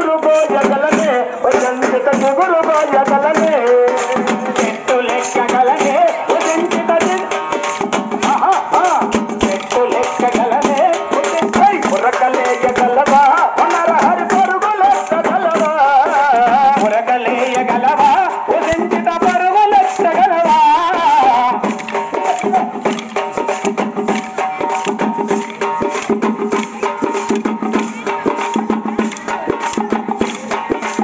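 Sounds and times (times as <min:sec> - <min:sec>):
person singing: 0:00.0 - 0:22.9
percussion: 0:00.0 - 0:31.0
wooden sticks clicking together: 0:21.7 - 0:26.8.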